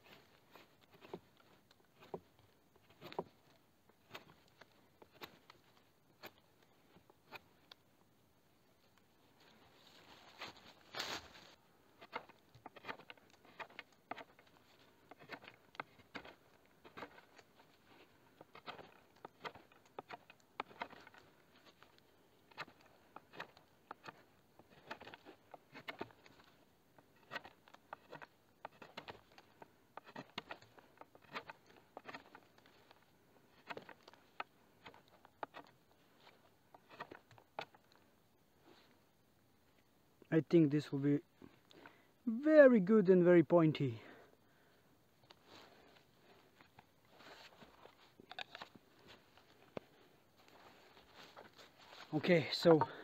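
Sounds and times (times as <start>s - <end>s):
knife cutting wood: 0.1s - 5.6s, 6.2s - 7.8s, 12.0s - 38.0s, 46.6s - 49.8s.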